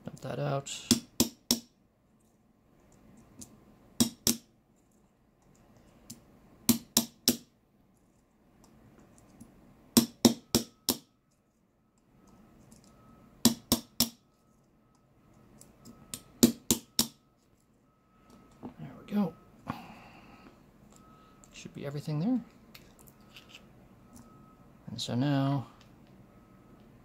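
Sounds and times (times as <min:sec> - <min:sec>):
small hammer tapping metal tool: 0:00.9 - 0:01.7, 0:03.4 - 0:04.5, 0:06.1 - 0:07.5, 0:10.0 - 0:11.1, 0:13.4 - 0:14.2, 0:16.1 - 0:17.2.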